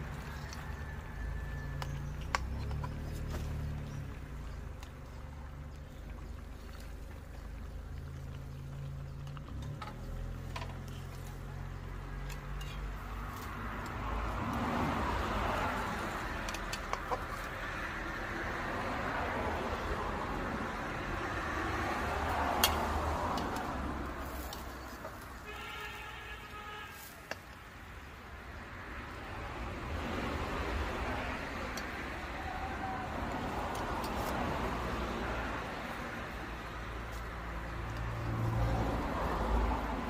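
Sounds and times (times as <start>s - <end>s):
metal utensils clicking on pot: 6.6s - 13.1s, 16.4s - 17.5s, 22.6s - 23.6s.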